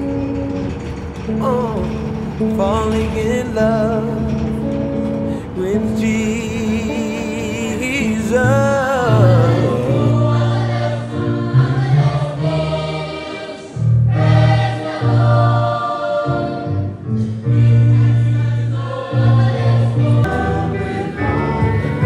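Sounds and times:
deep bass accompaniment: 0:00.0 - 0:12.8, 0:16.7 - 0:22.0
children's choir singing gospel: 0:06.8 - 0:22.0.

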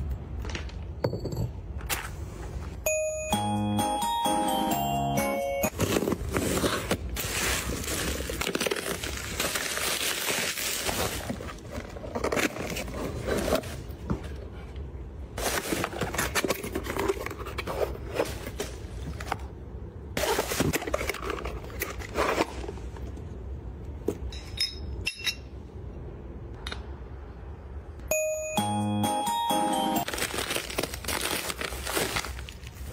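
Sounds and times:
plastic packaging crinkling: 0:05.7 - 0:13.2, 0:30.0 - 0:32.9.

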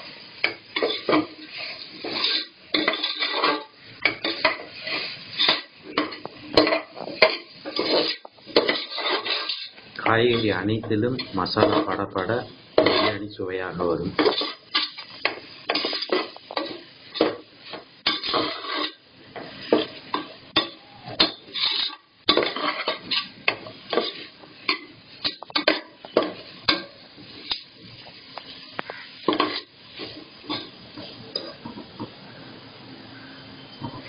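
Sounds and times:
oil sizzling: 0:00.0 - 0:34.0
metal spoon scraping pot: 0:00.4 - 0:10.6, 0:12.8 - 0:13.2, 0:14.2 - 0:19.0, 0:19.7 - 0:27.7.

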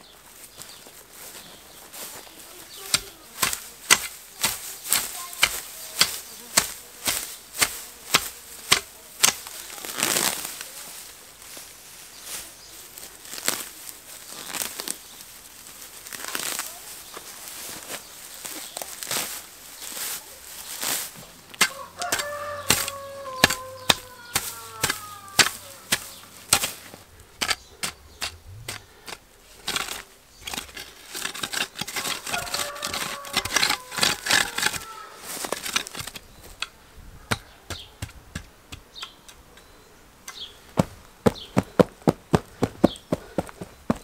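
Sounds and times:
grass tearing: 0:01.2 - 0:44.0
garden hoe striking soil: 0:02.7 - 0:10.5, 0:20.6 - 0:44.0
animal call: 0:21.7 - 0:26.4.

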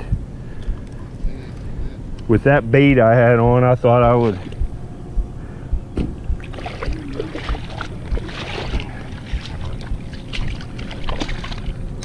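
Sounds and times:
low thumps: 0:00.0 - 0:01.4, 0:02.9 - 0:10.7
river water washing: 0:06.4 - 0:12.0.

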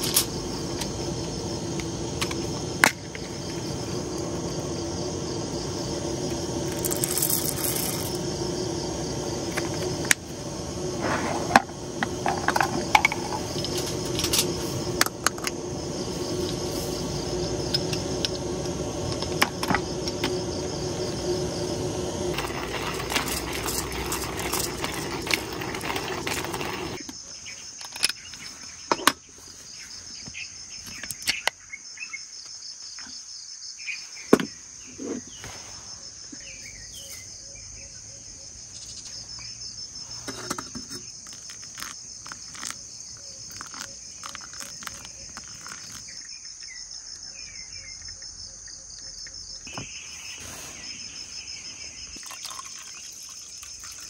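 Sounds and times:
low hum: 0:00.0 - 0:27.0
crickets chirping: 0:00.0 - 0:54.0.

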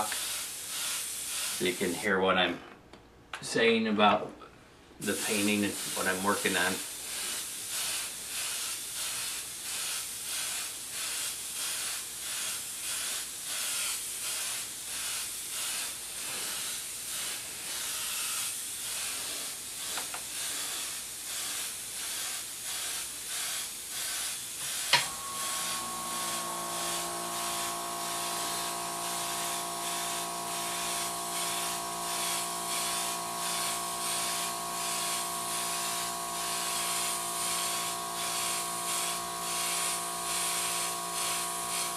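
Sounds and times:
airbrush hiss pulsing: 0:00.0 - 0:02.0, 0:05.0 - 0:41.9
steady hum: 0:24.9 - 0:41.9.

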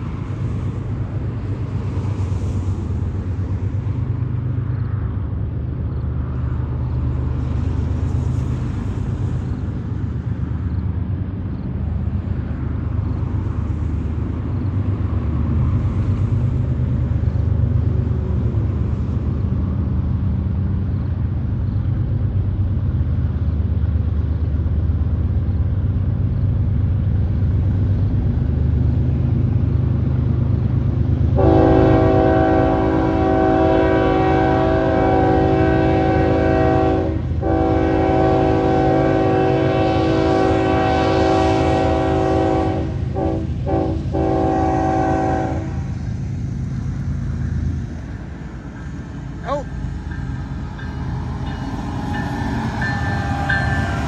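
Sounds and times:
diesel locomotives rumbling: 0:00.0 - 0:54.0
locomotive air horn blasts: 0:31.4 - 0:45.8, 0:50.1 - 0:54.0.

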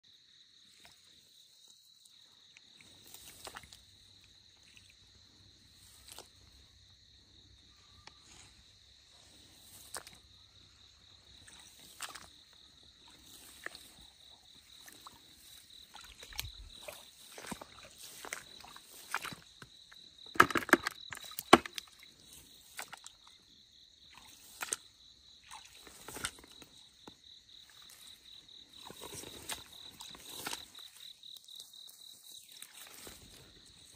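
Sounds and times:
high insect drone: 0:00.1 - 0:33.9
dry grass rustling: 0:11.3 - 0:19.7, 0:27.8 - 0:33.9.

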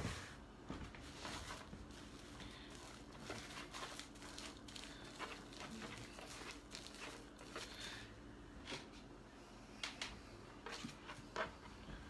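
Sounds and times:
plastic wrap crinkling: 0:00.9 - 0:08.1.

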